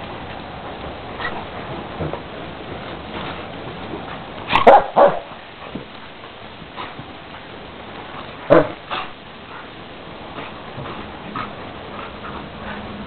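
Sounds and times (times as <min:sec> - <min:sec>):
dog play barks: 0:04.4 - 0:05.4, 0:08.4 - 0:09.2.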